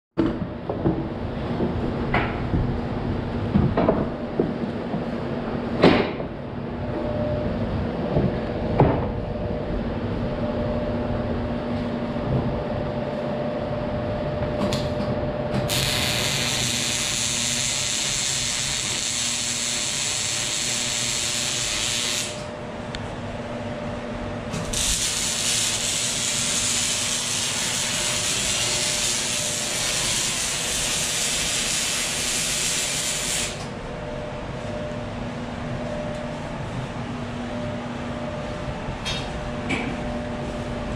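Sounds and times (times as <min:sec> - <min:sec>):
steady hum: 0:00.2 - 0:40.9
arc welding crackling hiss: 0:15.7 - 0:22.5, 0:24.5 - 0:33.7.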